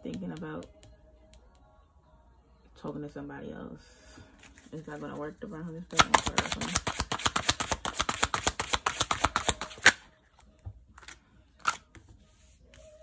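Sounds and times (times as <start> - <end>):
cards slapping on cloth: 5.9 - 10.0
cards snapping: 6.0 - 10.0
cards shuffling: 6.0 - 12.0.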